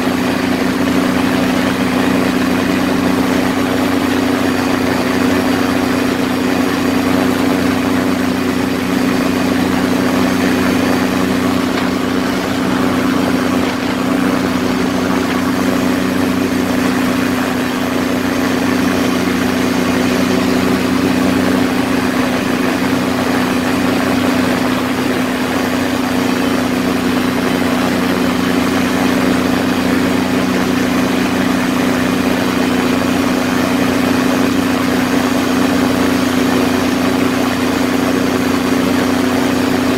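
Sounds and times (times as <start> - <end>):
rushing air: 0.0 - 30.3
light aircraft engine droning: 0.0 - 39.9.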